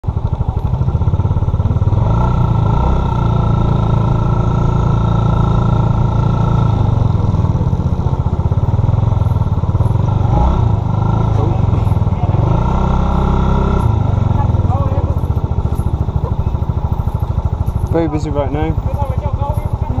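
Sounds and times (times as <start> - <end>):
scooter engine rumble: 0.0 - 20.0.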